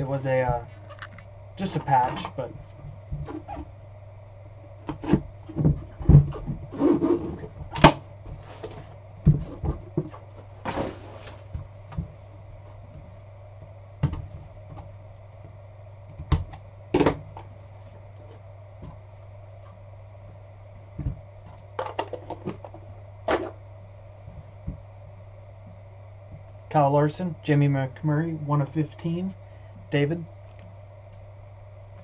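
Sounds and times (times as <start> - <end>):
steady low hum: 0.0 - 32.0
cardboard rubbing and sliding: 4.9 - 7.5, 10.6 - 11.5.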